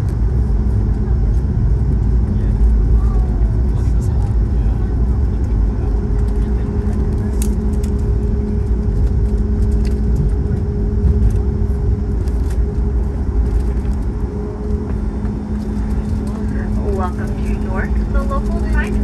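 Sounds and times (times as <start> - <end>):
aircraft cabin low rumble: 0.0 - 19.0
steady hum: 0.0 - 19.0
light clicks and rattles: 5.4 - 11.5.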